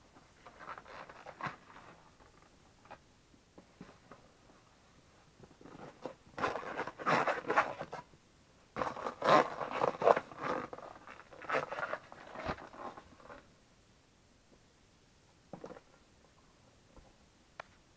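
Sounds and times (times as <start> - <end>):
rubber boot squeaking and scraping: 0.4 - 1.9, 5.6 - 8.1, 8.8 - 13.4.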